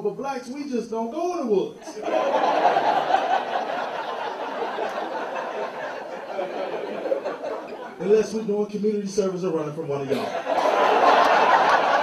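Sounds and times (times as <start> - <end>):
audience laughing: 1.8 - 8.2, 10.1 - 12.0.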